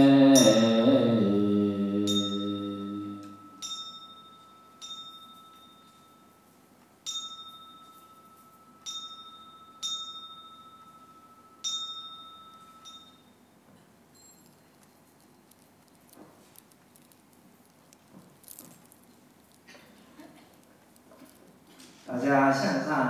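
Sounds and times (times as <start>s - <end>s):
group chanting: 0.0s - 3.4s
small metal bell ringing: 0.4s - 1.0s, 2.0s - 15.6s.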